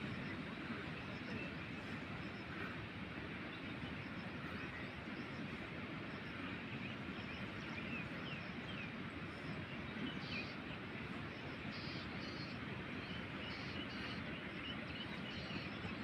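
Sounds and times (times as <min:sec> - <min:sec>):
outdoor background noise: 0:00.0 - 0:16.0
faint bird chirps: 0:11.6 - 0:16.0.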